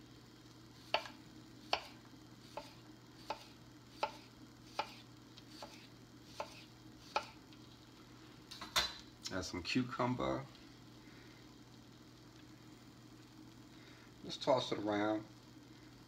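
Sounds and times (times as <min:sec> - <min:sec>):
knife tapping cutting board: 0:00.9 - 0:01.1.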